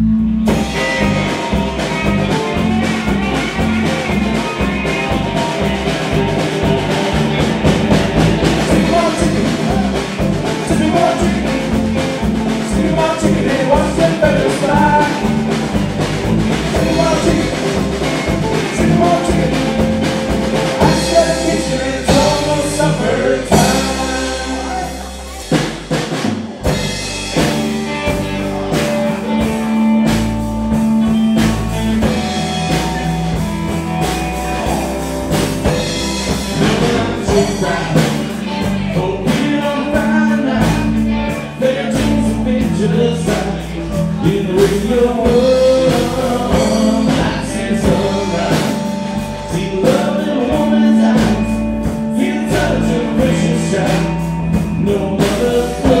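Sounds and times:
bass guitar: 0.0 - 56.0
drum kit beat: 0.0 - 56.0
electric guitars: 0.0 - 56.0.

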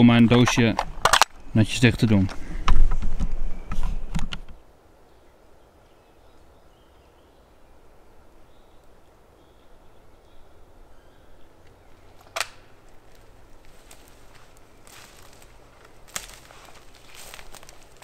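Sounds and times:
faint bird chirps: 5.0 - 12.1.

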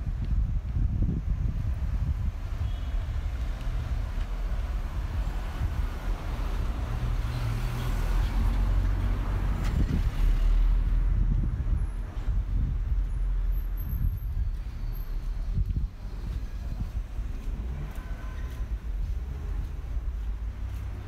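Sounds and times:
car engine passing by: 4.1 - 11.3.

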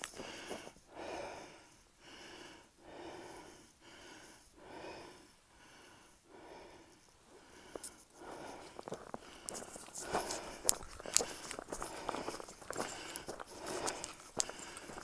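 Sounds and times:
person breathing heavily: 0.0 - 15.0.

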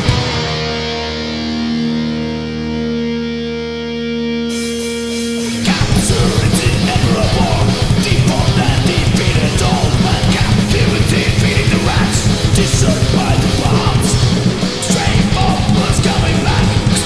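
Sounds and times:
metal band with fast drumming: 0.0 - 1.4, 5.2 - 17.0.

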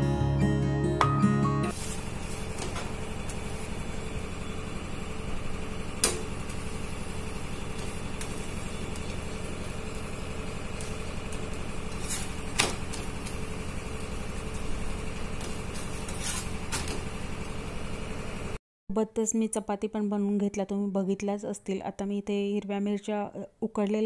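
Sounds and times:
gas stove rumble: 1.7 - 18.6.

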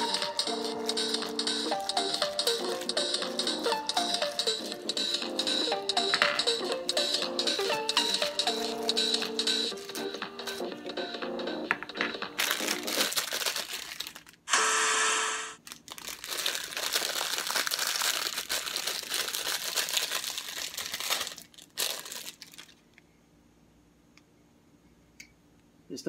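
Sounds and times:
plastic bag crinkling: 0.2 - 4.8, 12.4 - 14.5, 15.6 - 23.0.

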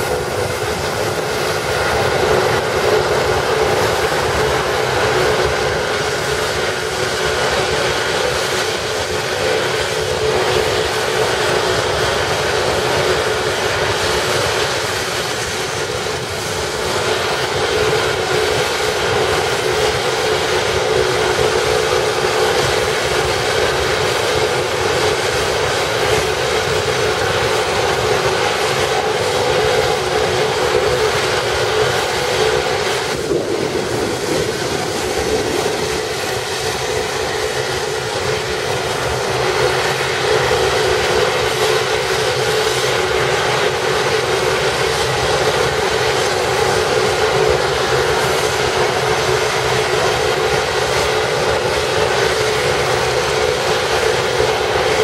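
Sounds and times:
helicopter rotor noise: 0.0 - 55.0
helicopter turbine whine: 0.0 - 55.0.

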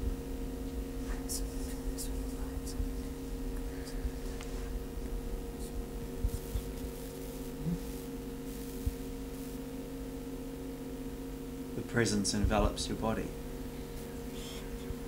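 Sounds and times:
low drone of held tones: 0.0 - 9.6
soft low thumps: 8.6 - 9.5.

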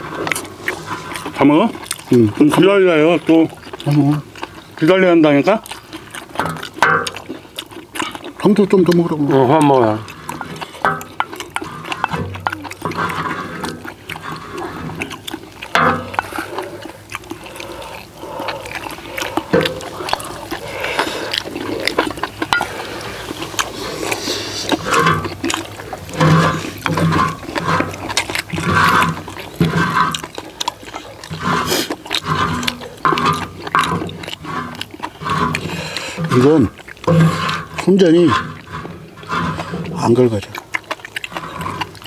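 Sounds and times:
spatula scraping iron pan: 0.0 - 1.4, 6.2 - 7.4, 9.8 - 16.5, 19.0 - 25.4, 26.0 - 30.5, 31.2 - 40.1
people chewing and slurping: 0.0 - 42.0.

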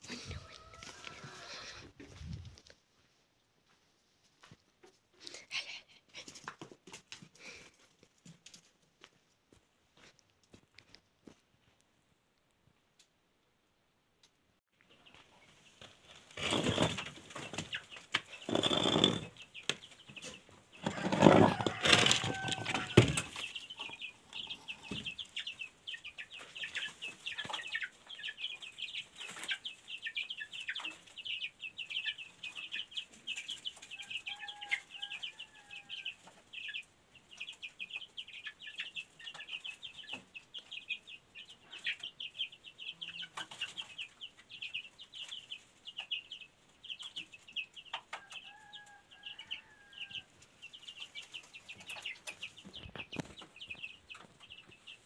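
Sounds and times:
chicks peeping: 0.0 - 2.6, 14.9 - 55.0.

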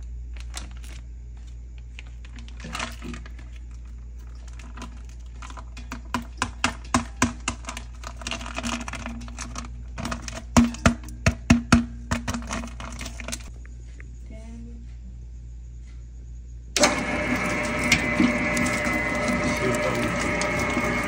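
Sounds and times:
plastic bag rustling: 0.0 - 5.8
steady low hum: 0.0 - 21.0
clicks and knocks in metal bowl: 4.7 - 13.5.

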